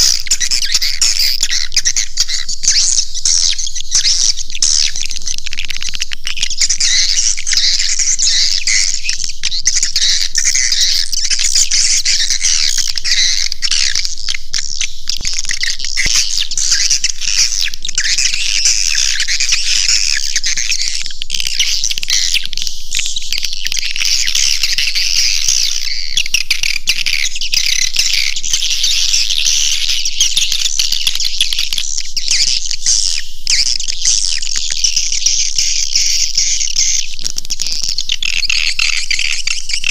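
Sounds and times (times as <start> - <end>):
swiftlet chirps chorus: 14.7 - 22.4.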